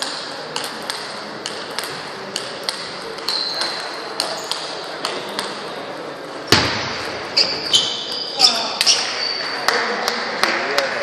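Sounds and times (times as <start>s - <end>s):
table tennis balls clicking: 0.0s - 5.7s
shoe squeak: 3.2s - 4.6s, 7.3s - 9.5s.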